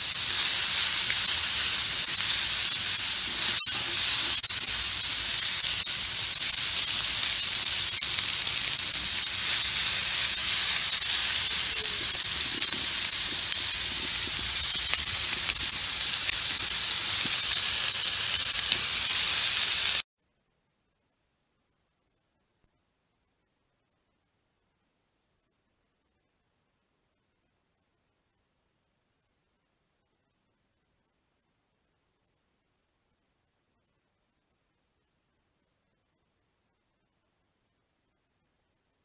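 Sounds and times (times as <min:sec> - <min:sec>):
onions sizzling on griddle: 0:00.0 - 0:20.1.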